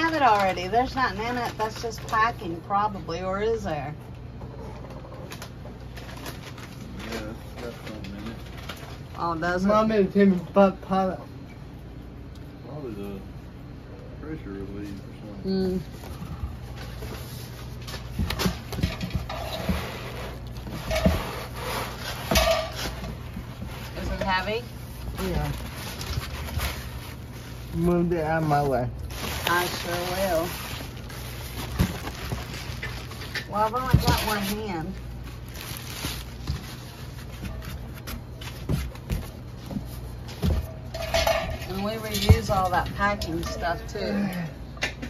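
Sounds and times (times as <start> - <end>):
packing materials rustling: 5.4 - 9.2, 16.7 - 40.5.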